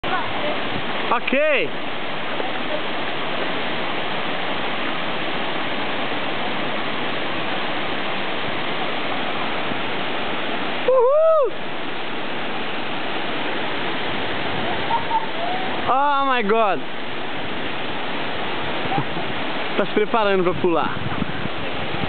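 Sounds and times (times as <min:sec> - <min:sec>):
waterfall rushing: 0:00.0 - 0:22.0
person whooping shout: 0:10.9 - 0:11.6.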